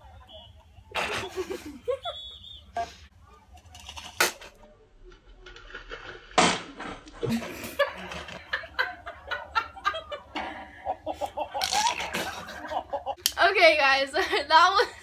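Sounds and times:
muffled laughter: 0:00.9 - 0:03.0, 0:07.2 - 0:13.2.

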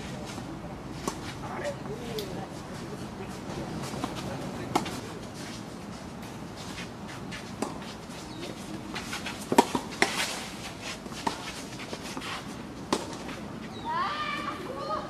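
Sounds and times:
tennis balls struck by rackets: 0:03.8 - 0:05.2, 0:07.6 - 0:10.5, 0:11.1 - 0:13.4
tennis balls bouncing on court: 0:07.6 - 0:10.3, 0:12.8 - 0:13.3.

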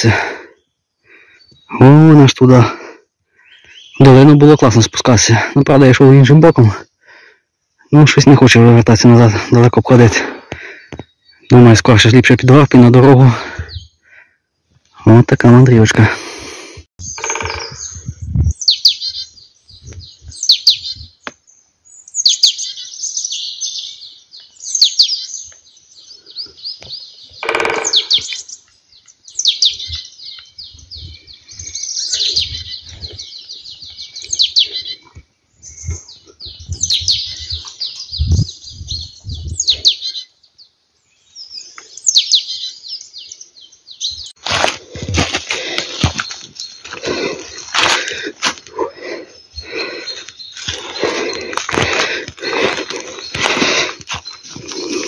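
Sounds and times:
songbird singing: 0:00.0 - 0:16.0, 0:17.0 - 0:55.0
footsteps on forest floor: 0:44.4 - 0:49.0, 0:49.6 - 0:55.0.

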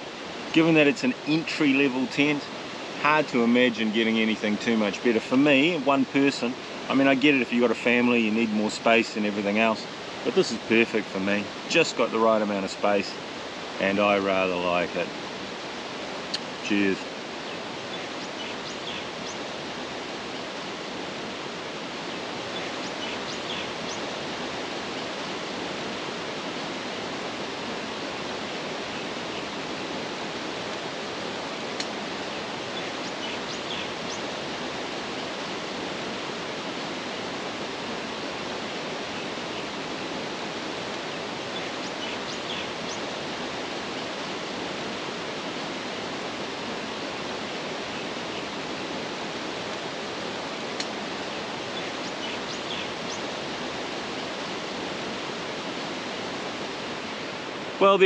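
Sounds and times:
water-like rushing noise: 0:00.0 - 0:58.0
faint bird chirps: 0:16.3 - 0:19.5, 0:22.1 - 0:24.2, 0:31.9 - 0:34.4, 0:41.1 - 0:43.1, 0:50.9 - 0:53.4.

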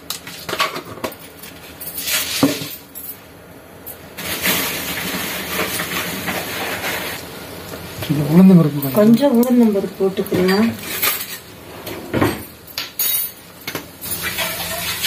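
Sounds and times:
lentils sizzling in hot oil: 0:04.2 - 0:10.9, 0:14.0 - 0:15.0.

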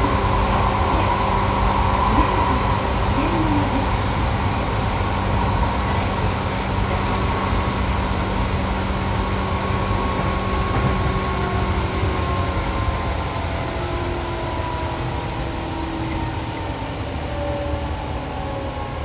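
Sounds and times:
train running gear hum: 0:00.0 - 0:19.0
train wheels rumbling on rail: 0:00.0 - 0:19.0.

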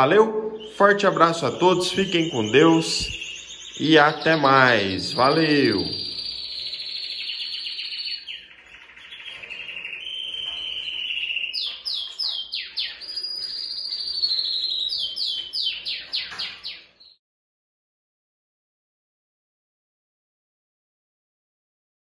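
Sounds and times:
canary singing: 0:00.0 - 0:17.2.

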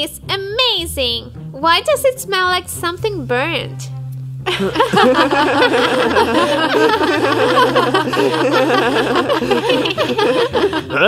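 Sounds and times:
low background tones: 0:00.0 - 0:11.0
people laughing and snickering: 0:04.5 - 0:11.0.

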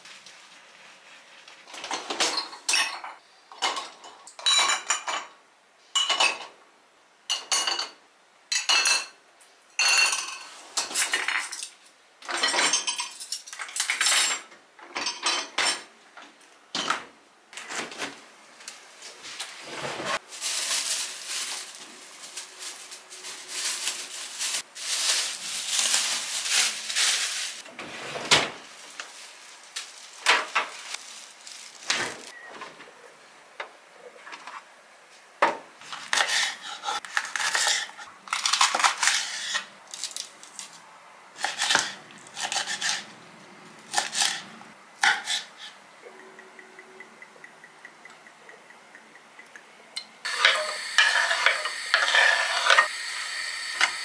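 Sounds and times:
dishes and cutlery clattering: 0:01.7 - 0:05.4, 0:06.0 - 0:06.5, 0:09.8 - 0:15.9.

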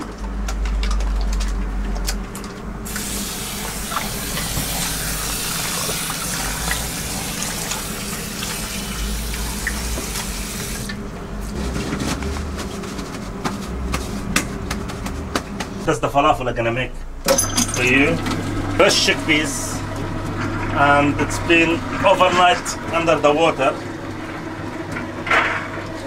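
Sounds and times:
tap water running into sink: 0:02.9 - 0:11.0.

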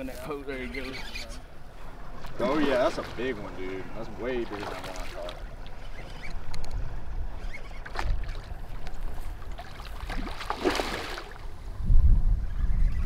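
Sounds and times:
wind rumbling on microphone: 0:00.0 - 0:13.0
fish splashing at water surface: 0:04.3 - 0:05.8, 0:07.8 - 0:11.5.

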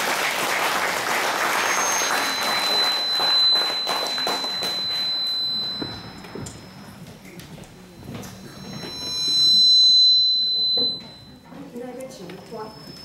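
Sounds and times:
audience applauding: 0:00.0 - 0:05.3
thin high steady tone: 0:01.5 - 0:13.0.

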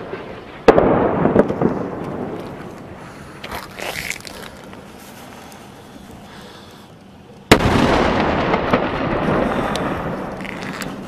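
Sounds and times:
loud explosion with rolling rumble: 0:00.0 - 0:03.0, 0:07.5 - 0:11.0.

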